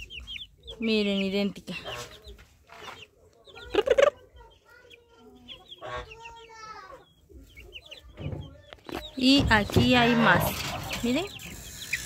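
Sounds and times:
chicks peeping: 0.0s - 12.0s
hen clucking softly: 5.2s - 6.4s.

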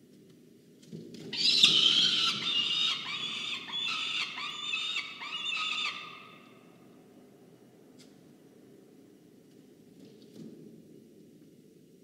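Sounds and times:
falcon calling loudly: 1.4s - 6.4s.

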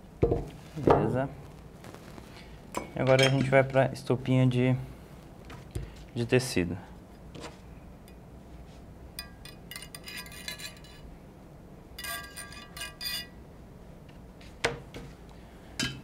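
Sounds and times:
metal tools clinking: 2.8s - 3.6s.

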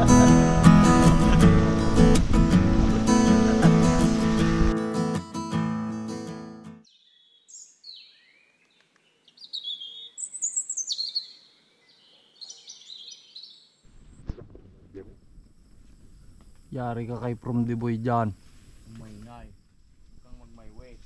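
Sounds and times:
acoustic guitar music: 0.0s - 6.9s
birds chirping: 6.8s - 14.1s.

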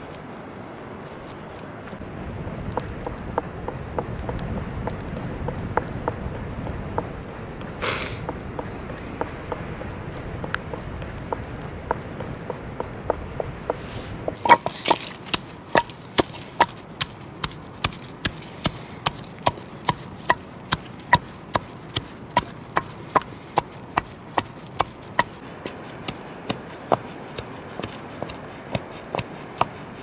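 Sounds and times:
pestle pounding in wooden mortar: 8.2s - 30.0s.

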